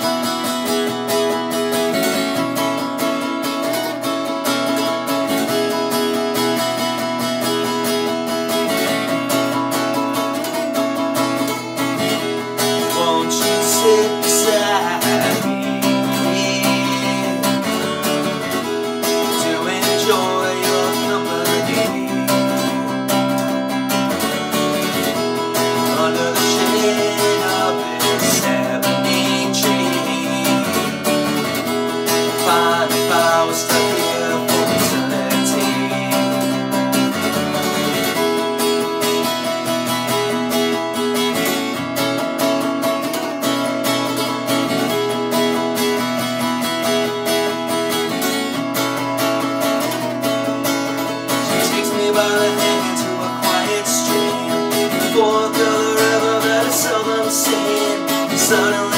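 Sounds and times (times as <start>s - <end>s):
acoustic guitar strumming: 0.0s - 58.9s
man singing: 12.0s - 38.2s, 50.9s - 58.9s.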